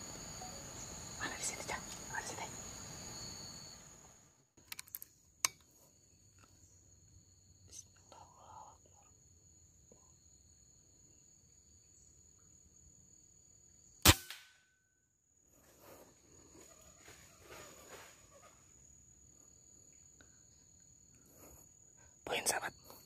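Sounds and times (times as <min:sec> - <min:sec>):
insects high-pitched tones: 0:00.0 - 0:23.0
air rifle shot: 0:14.0 - 0:14.6.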